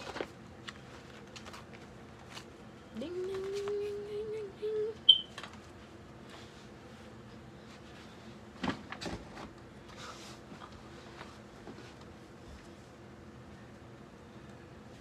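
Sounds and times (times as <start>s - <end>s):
rustling of handling things: 0.0s - 4.0s, 5.3s - 13.0s.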